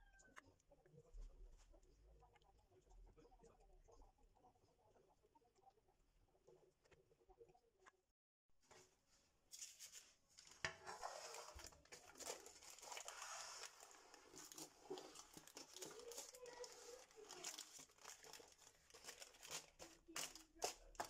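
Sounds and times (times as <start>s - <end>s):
paper crinkling and rustling: 9.5s - 21.0s.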